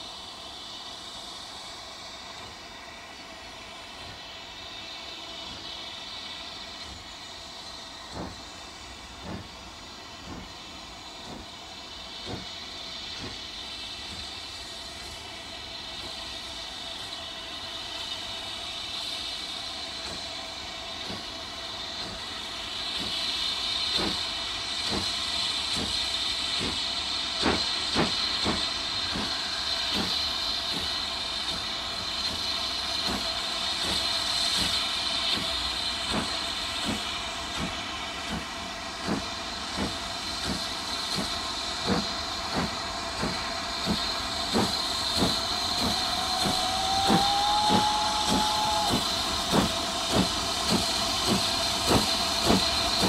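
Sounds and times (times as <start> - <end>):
steam hiss: 0.0 - 53.0
steam locomotive exhaust beats: 0.0 - 53.0
steam whistle: 44.6 - 50.3.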